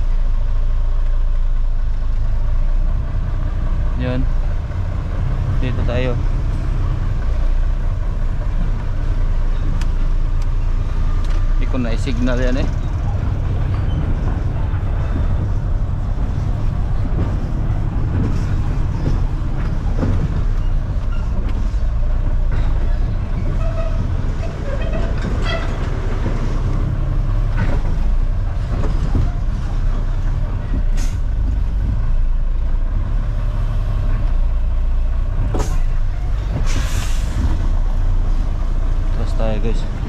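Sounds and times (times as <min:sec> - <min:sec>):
truck diesel engine rumbling: 0:00.0 - 0:40.0
hiss of air: 0:36.6 - 0:37.5.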